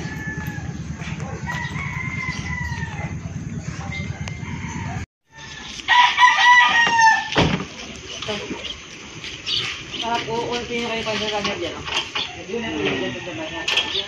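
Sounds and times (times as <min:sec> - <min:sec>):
steady low rumble: 0:00.0 - 0:05.1
rooster crowing: 0:00.0 - 0:07.4, 0:12.4 - 0:14.0.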